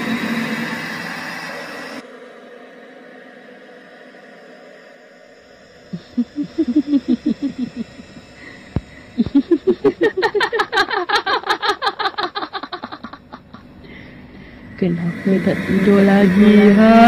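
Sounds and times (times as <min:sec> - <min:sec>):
cackling laughter: 0:05.9 - 0:13.7.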